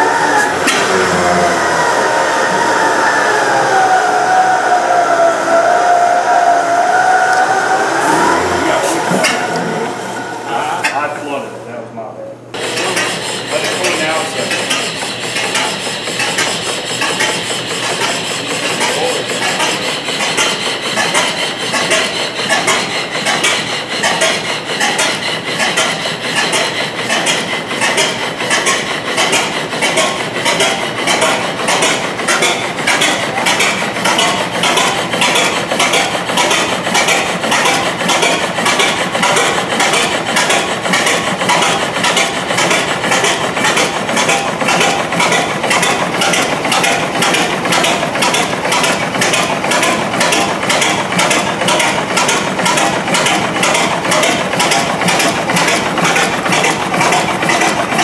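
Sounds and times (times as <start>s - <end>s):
model engine clattering clicks: 12.8s - 58.0s.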